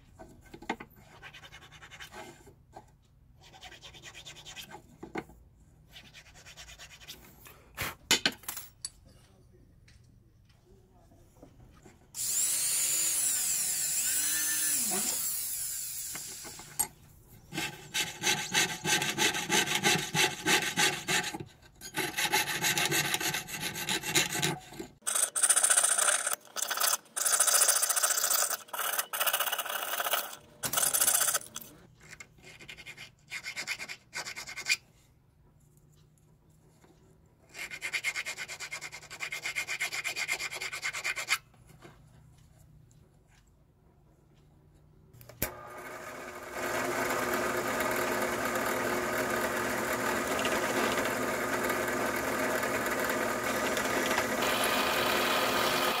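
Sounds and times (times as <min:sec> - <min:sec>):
file rasping metal: 0:12.2 - 0:15.5, 0:17.5 - 0:25.0
rotary tool drilling metal: 0:12.2 - 0:16.8, 0:21.9 - 0:31.4, 0:46.0 - 0:56.0
saw cutting metal: 0:12.2 - 0:16.8, 0:17.5 - 0:25.4, 0:46.6 - 0:56.0.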